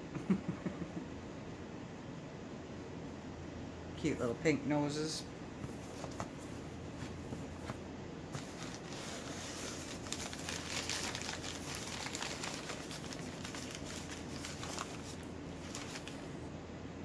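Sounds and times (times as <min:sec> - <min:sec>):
wrapping crinkling and rustling: 0:05.8 - 0:16.4.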